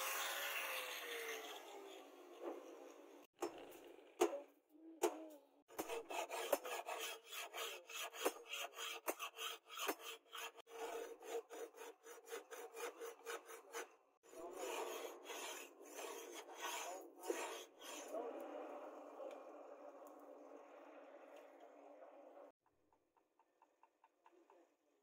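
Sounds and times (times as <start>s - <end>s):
file scraping steel blade: 0.0s - 2.8s, 5.7s - 18.2s.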